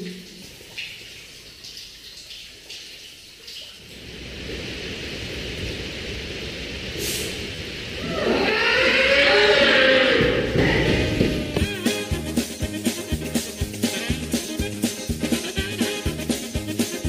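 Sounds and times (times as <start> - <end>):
water dripping on stone: 0.0 - 4.0.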